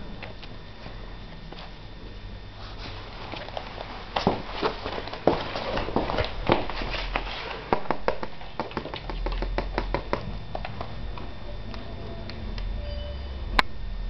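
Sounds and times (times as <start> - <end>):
dog claws clicking on hard floor: 3.3 - 10.9.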